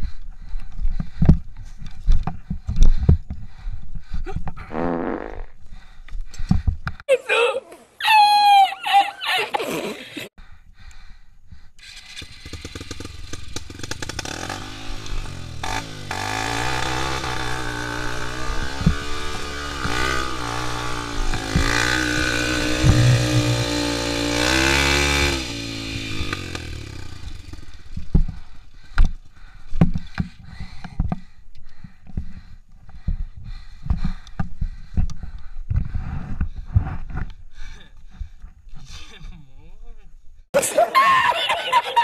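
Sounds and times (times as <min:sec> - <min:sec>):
motorcycle engine revving: 0:11.8 - 0:28.6
knocks and scrapes of bike: 0:16.9 - 0:23.8, 0:26.1 - 0:32.5.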